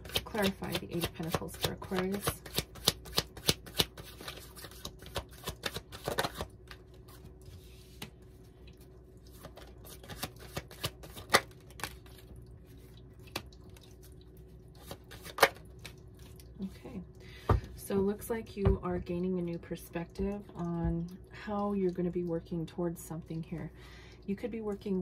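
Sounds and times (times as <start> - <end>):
cards being shuffled: 0.0 - 8.1, 9.3 - 12.2, 14.8 - 16.0.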